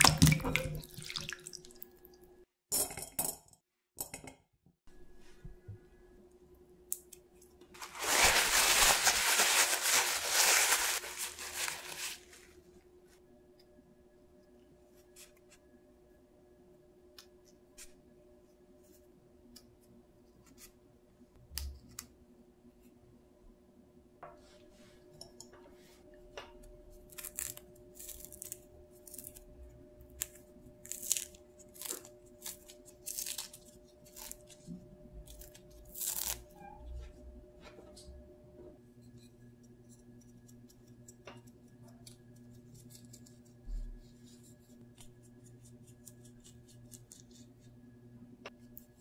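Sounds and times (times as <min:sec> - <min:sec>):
orange peel ripping: 0:27.1 - 0:29.5, 0:30.2 - 0:34.5, 0:35.3 - 0:36.5.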